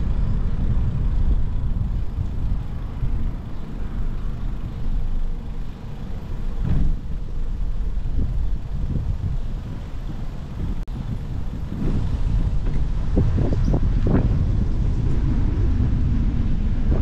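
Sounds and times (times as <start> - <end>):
distant road traffic rumble: 0.0 - 17.0
loud thump: 6.6 - 7.0.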